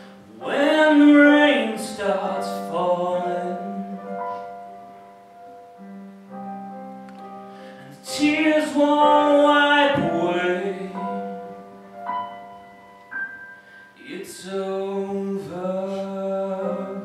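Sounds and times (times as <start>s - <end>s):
man singing: 0.0s - 4.5s, 7.8s - 11.6s, 14.0s - 17.0s
keyboard piano chords: 0.0s - 17.0s.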